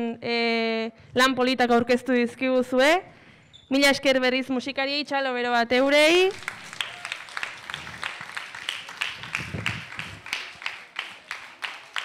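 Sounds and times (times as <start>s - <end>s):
audience applauding: 6.3s - 12.0s.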